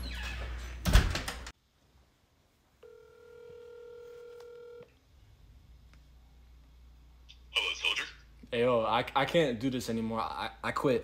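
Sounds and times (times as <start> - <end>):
door banging shut: 0.8 - 1.5
phone ringback tone: 2.8 - 4.9.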